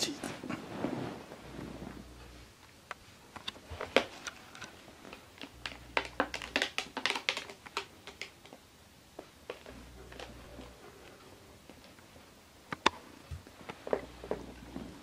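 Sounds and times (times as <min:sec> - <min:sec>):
plastic case clicking and tapping: 0:05.6 - 0:08.6.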